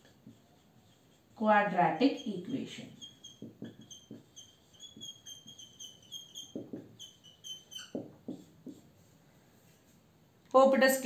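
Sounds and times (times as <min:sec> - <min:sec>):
pen strokes and taps: 0:00.0 - 0:01.2, 0:02.2 - 0:09.1
pen tip squeaking: 0:02.1 - 0:08.4.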